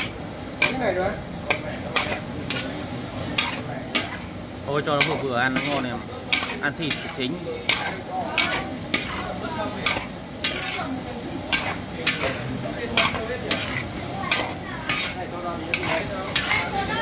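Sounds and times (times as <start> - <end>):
food sizzling in pan: 0.0 - 17.0
utensil scraping and knocking pan: 3.4 - 4.3, 4.9 - 16.8.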